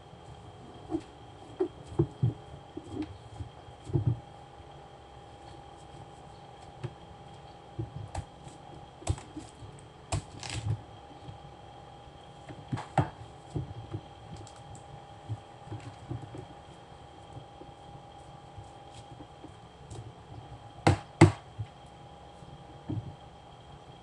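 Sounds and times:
knife crunching through watermelon: 10.2 - 10.7.

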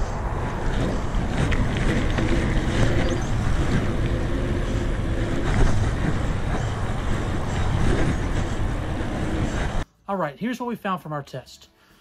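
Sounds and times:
bike tyre and trail noise: 0.0 - 9.8
wind buffeting microphone: 0.0 - 9.8
bike clicks and rattles: 0.4 - 9.8.

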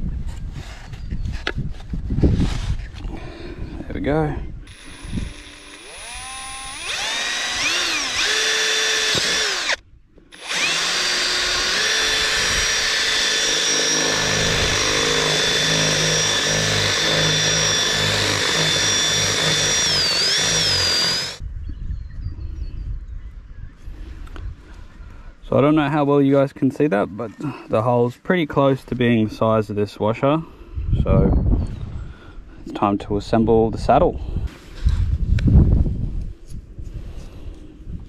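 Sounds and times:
cordless drill boring through pipe: 4.7 - 21.4.

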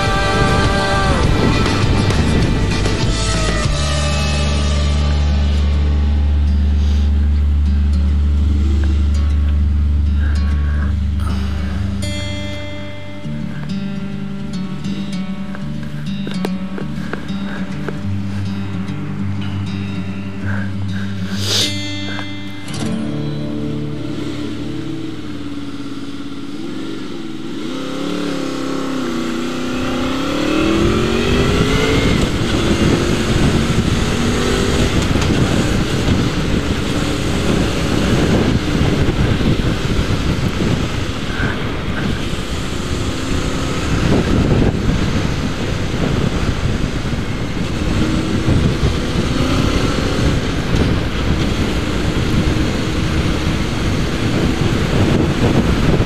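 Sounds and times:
motorcycle engine: 0.0 - 56.0
wind noise on microphone: 0.0 - 56.0.

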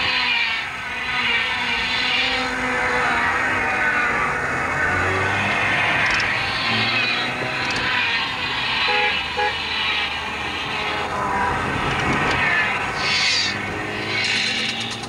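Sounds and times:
car driving heard from inside: 1.2 - 15.0
car horn toots: 8.9 - 9.6.

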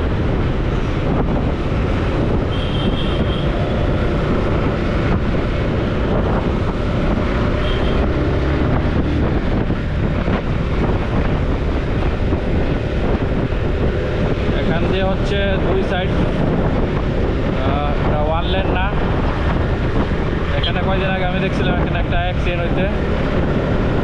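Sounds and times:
motorcycle engine cruising: 0.0 - 24.0
road noise: 0.0 - 24.0
wind buffeting microphone: 0.0 - 24.0.

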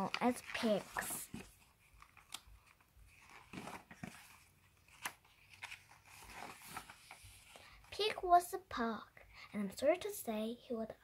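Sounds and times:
book pages rustling: 0.0 - 8.2.

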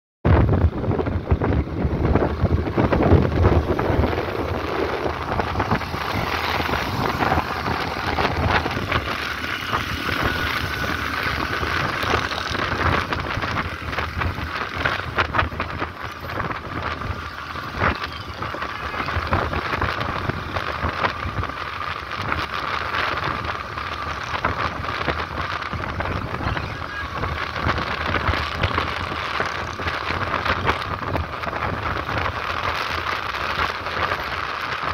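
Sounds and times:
road traffic: 0.3 - 34.9
wind buffeting microphone: 0.3 - 34.9
motorcycle engine: 0.4 - 34.9.

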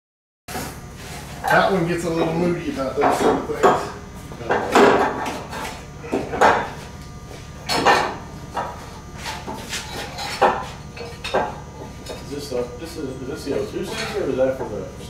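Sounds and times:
metal tools clanking: 13.8 - 14.4.

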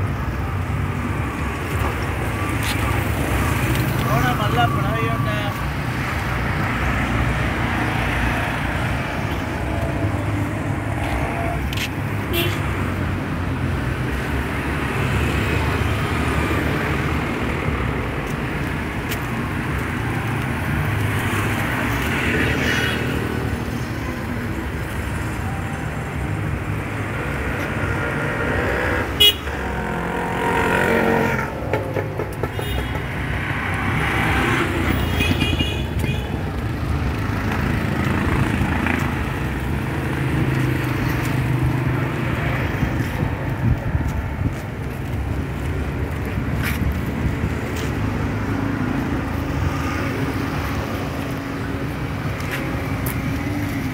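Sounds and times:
vehicle engines rumbling: 0.0 - 53.9
car horn toots: 29.2 - 29.9.

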